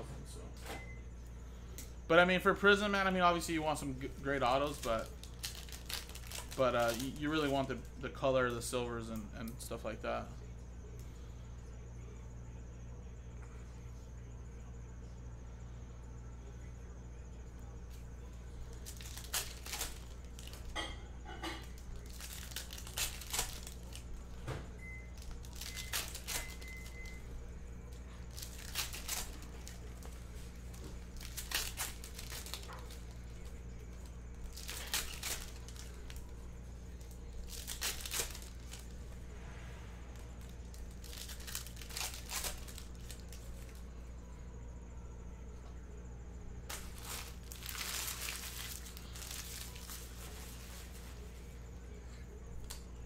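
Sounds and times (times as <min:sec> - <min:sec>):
foil packs tearing and crinkling: 0:02.6 - 0:09.1, 0:18.7 - 0:20.9, 0:21.6 - 0:24.4, 0:25.1 - 0:27.2, 0:28.0 - 0:39.0, 0:40.4 - 0:43.8, 0:46.7 - 0:51.2
low hum: 0:10.3 - 0:53.0.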